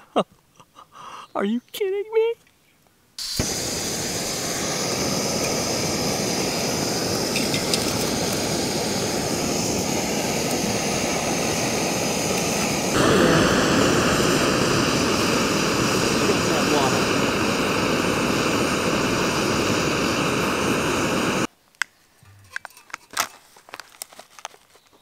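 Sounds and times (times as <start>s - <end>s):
stove burner hissing: 3.2s - 21.5s.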